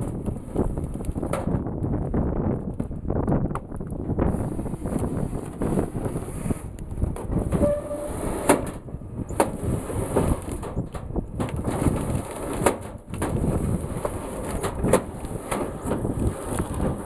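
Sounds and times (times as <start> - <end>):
logs cracking and knocking: 0.0 - 4.2, 10.2 - 17.0
heavy machine rumbling: 0.0 - 17.0.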